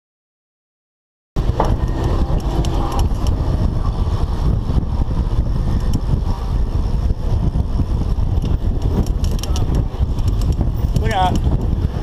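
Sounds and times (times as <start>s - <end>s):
wind buffeting microphone: 1.4s - 12.0s
bicycle clicks and rattles: 1.5s - 3.8s, 5.6s - 6.2s, 7.8s - 12.0s.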